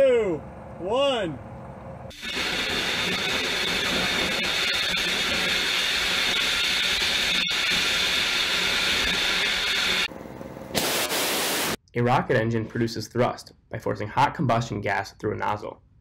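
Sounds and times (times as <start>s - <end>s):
rocket engine hissing roar: 2.1s - 10.1s.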